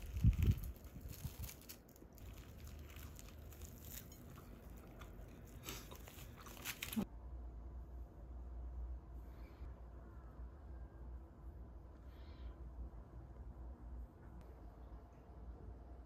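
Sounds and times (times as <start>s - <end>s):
cling film crinkling: 0.0s - 7.1s
person chewing a sandwich: 0.0s - 7.1s.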